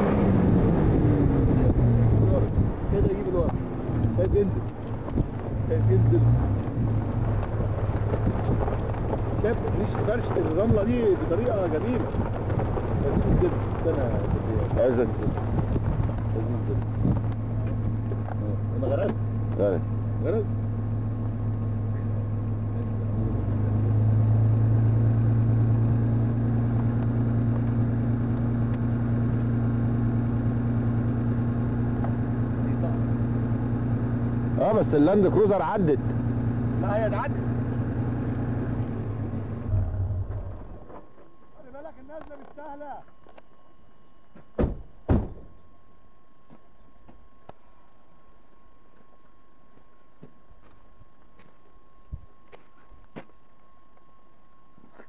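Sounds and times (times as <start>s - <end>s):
engine running low hum: 0.0s - 55.0s
heavy thumps: 44.3s - 45.5s.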